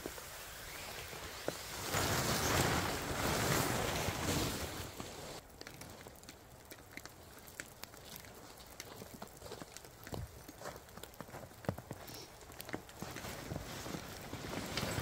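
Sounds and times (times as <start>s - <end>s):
water dripping: 5.4s - 13.0s.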